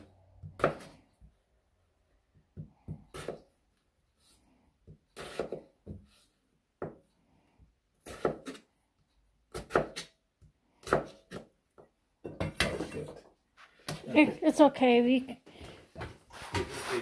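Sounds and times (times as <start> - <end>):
knife cutting on cutting board: 5.1 - 6.4, 8.0 - 8.7.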